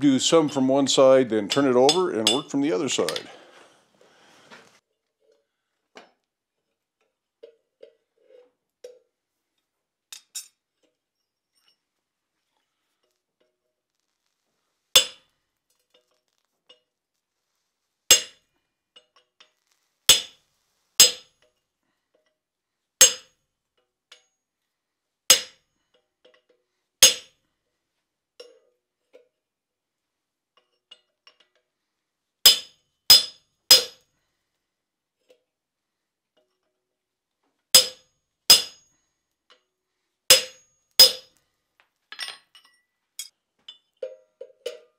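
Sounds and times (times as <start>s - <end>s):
hammer striking chisel on hot iron: 15.0s - 15.2s, 18.1s - 18.4s, 20.1s - 20.4s, 21.0s - 21.3s, 23.0s - 23.3s, 25.3s - 25.6s, 27.0s - 27.3s, 32.5s - 34.0s, 37.8s - 38.9s, 40.3s - 41.3s.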